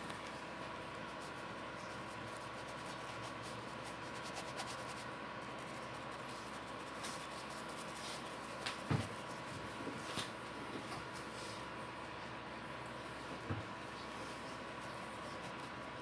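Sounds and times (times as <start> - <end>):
faint constant tone: 0.0 - 16.0
bristle brush strokes on fabric: 1.0 - 8.8.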